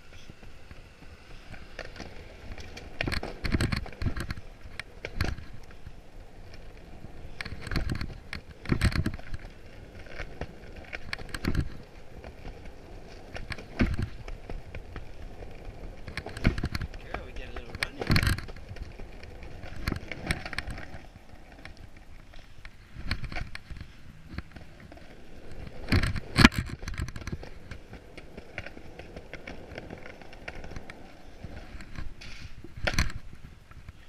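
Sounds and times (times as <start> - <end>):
skateboard wheels rolling on concrete: 0.0 - 34.0
skateboard clacks and thumps: 6.5 - 22.2.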